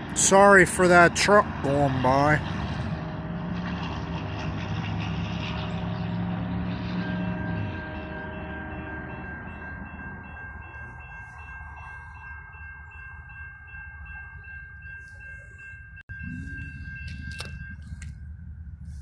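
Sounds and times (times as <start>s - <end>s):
passing truck engine: 0.0s - 14.6s
crossing bell ringing: 0.0s - 18.9s
low rumble: 16.1s - 19.0s.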